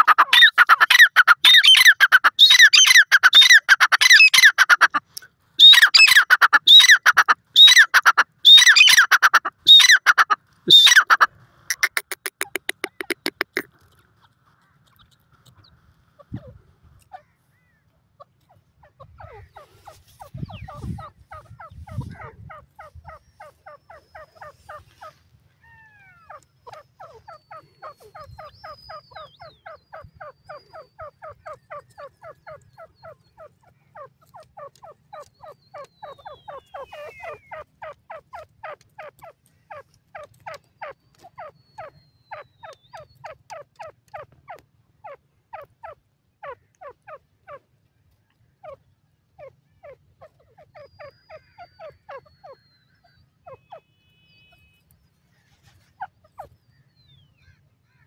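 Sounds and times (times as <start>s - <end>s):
francolin calling: 18.5s - 39.1s, 49.4s - 58.0s.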